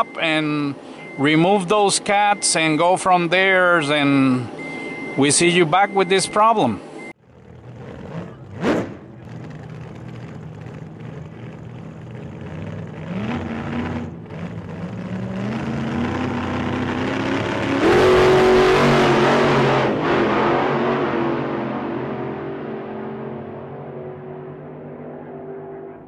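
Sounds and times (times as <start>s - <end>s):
vehicle engine speeding up: 7.2s - 26.0s.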